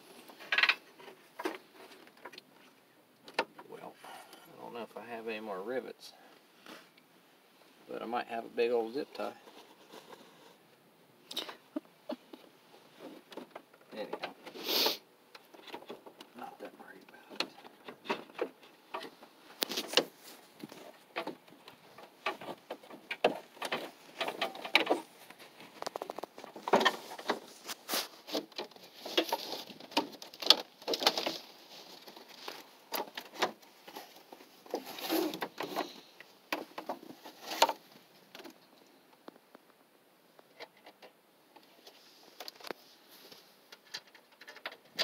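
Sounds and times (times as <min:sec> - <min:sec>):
hands handling plastic and metal parts: 0:17.2 - 0:39.8.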